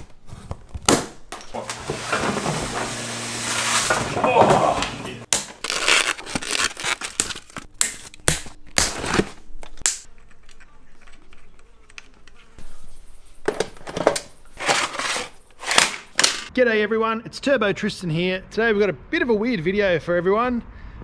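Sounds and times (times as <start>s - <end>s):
handling noise: 0.0s - 16.5s
rustling: 10.1s - 16.5s.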